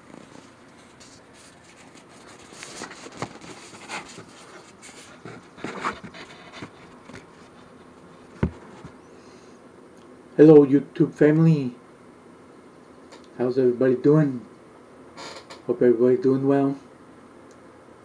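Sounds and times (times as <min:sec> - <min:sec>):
handling noise on microphone: 0:00.0 - 0:09.0.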